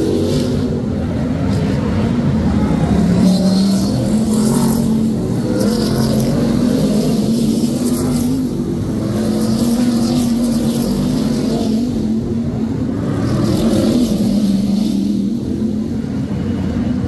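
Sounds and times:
race car engines roaring past: 0.0s - 17.0s.

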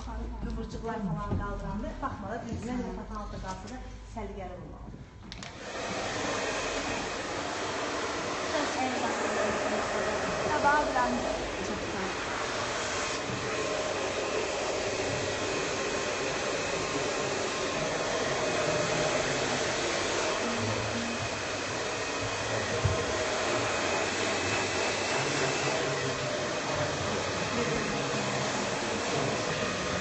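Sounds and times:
hair dryer blowing air: 5.3s - 30.0s.

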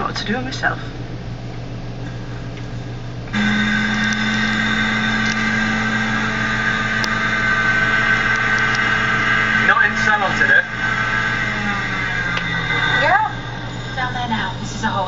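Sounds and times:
low background hum: 0.0s - 15.0s
drone of held tones: 3.3s - 15.0s.

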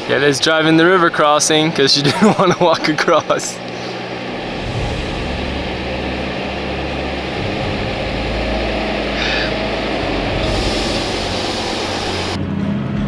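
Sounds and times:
truck engine under load: 0.0s - 13.0s
water washing: 3.6s - 12.4s.

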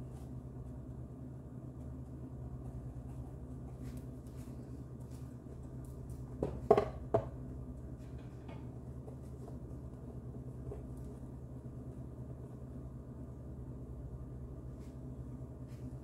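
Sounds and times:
steady low hum: 0.0s - 16.0s
plate knocking against bowl: 6.4s - 7.4s.

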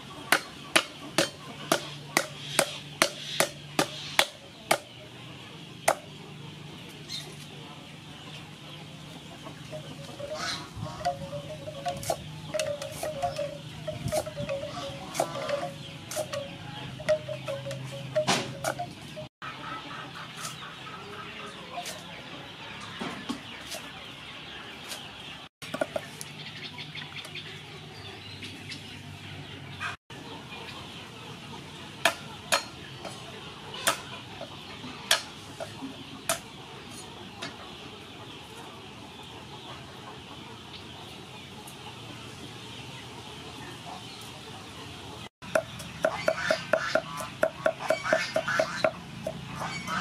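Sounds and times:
fowl clucking: 9.2s - 22.1s, 45.5s - 50.0s.

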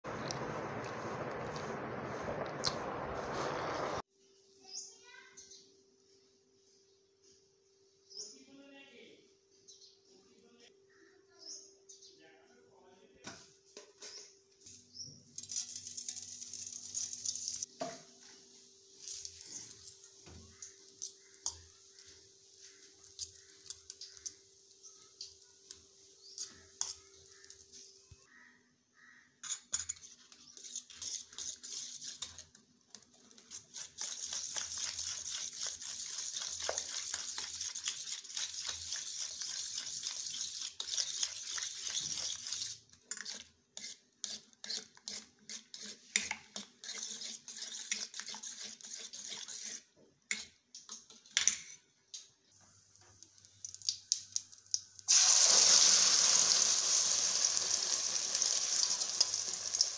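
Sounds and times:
loud sizzle of hot oil: 0.1s - 4.0s, 54.4s - 59.9s
fork beating eggs in steel bowl: 29.8s - 50.6s.

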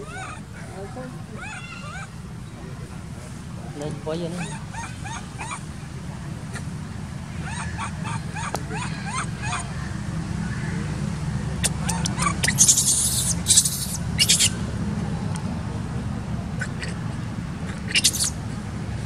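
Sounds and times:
baby monkey squeaky calls: 0.0s - 0.5s, 1.4s - 2.2s, 4.4s - 5.6s, 7.4s - 9.7s, 11.6s - 14.6s, 17.7s - 18.4s.

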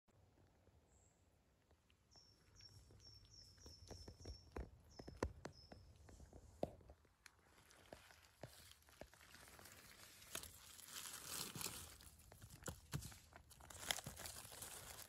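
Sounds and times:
small bird calling: 1.9s - 6.6s
footsteps on woodland floor: 3.4s - 10.5s.

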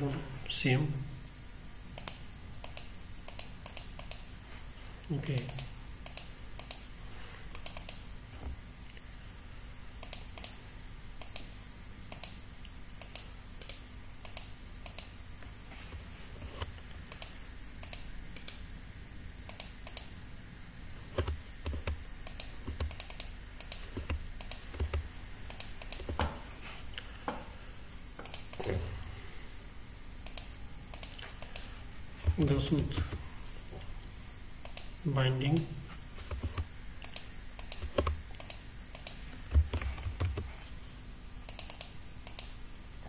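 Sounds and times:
mouse and keyboard clicks: 36.2s - 40.5s, 41.5s - 42.5s.

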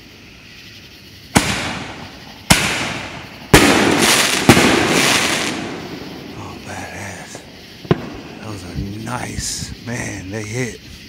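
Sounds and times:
firework booms with rolling echo: 1.2s - 6.6s, 7.3s - 8.8s.

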